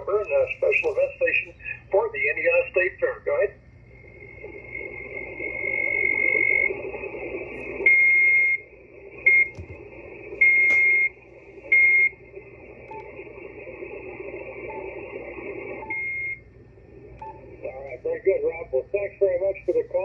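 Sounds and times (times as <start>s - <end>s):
radio band hiss: 0.0s - 20.0s
radio whistle beeps: 4.3s - 9.6s, 10.2s - 12.2s.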